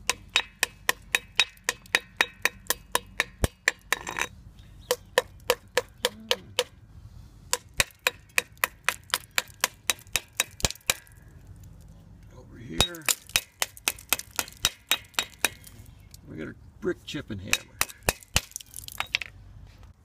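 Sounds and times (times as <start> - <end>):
hammer tapping on concrete: 0.0 - 4.3, 4.9 - 6.8, 7.5 - 11.2, 12.8 - 15.7, 17.4 - 19.3.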